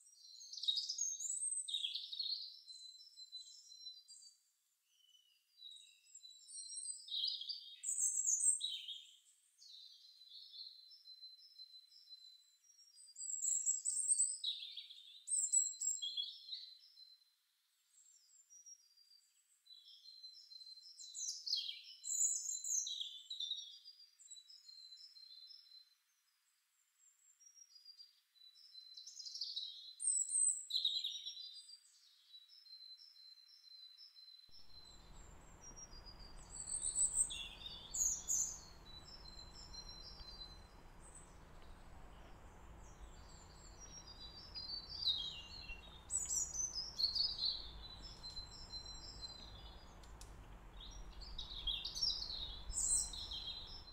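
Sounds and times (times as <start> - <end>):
small birds singing and calling: 0.0 - 26.2, 27.0 - 53.9
low background rumble: 34.6 - 53.9.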